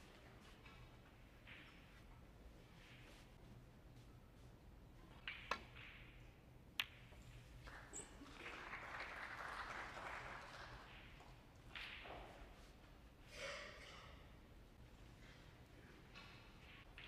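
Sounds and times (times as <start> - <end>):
audience applauding: 7.7 - 10.9.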